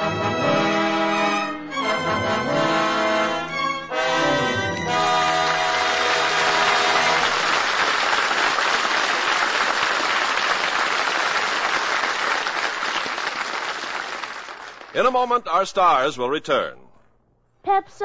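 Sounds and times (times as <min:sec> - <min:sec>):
held brass chord: 0:00.0 - 0:07.4
audience applauding: 0:05.0 - 0:15.0.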